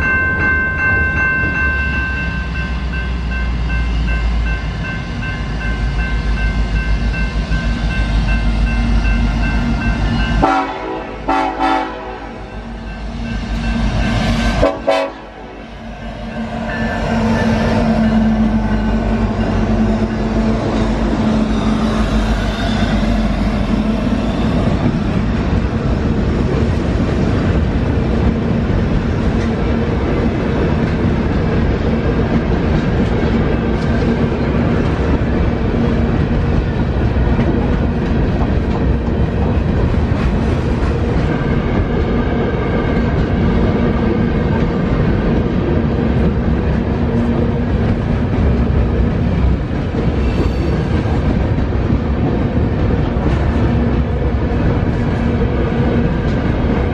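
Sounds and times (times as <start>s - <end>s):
train wheels rumbling on rails: 0.0s - 56.9s
locomotive diesel engines: 1.9s - 50.2s.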